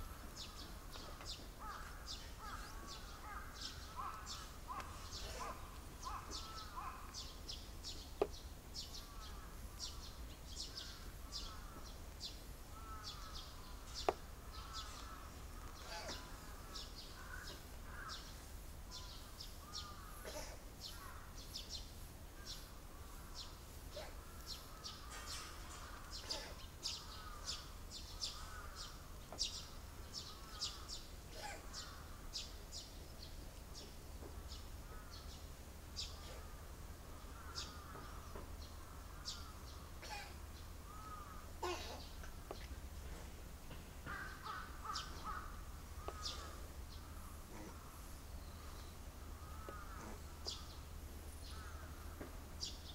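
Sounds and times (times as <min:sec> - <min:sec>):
birds chirping: 0:00.0 - 0:52.9.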